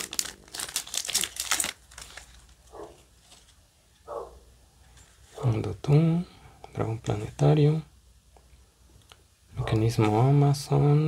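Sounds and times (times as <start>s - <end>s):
foil wrapper crinkling: 0.0s - 3.6s.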